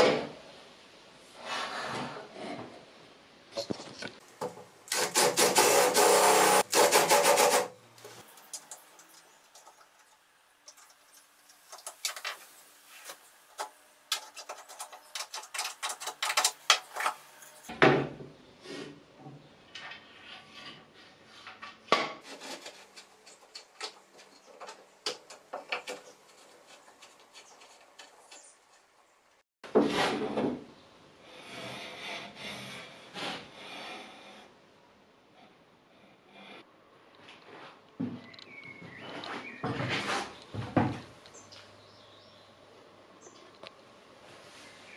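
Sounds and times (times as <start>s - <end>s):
wood scraping along metal rail: 19.8s - 29.1s, 39.1s - 40.9s.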